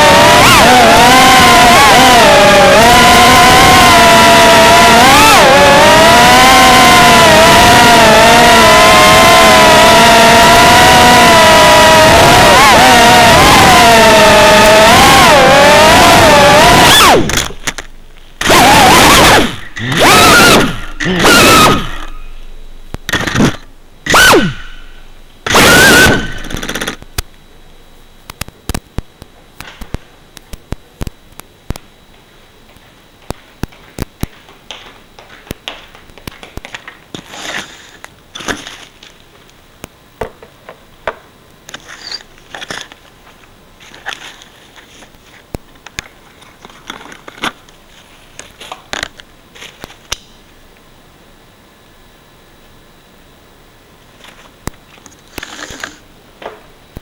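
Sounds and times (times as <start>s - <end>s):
drone motors whining buzz: 0.0s - 28.3s.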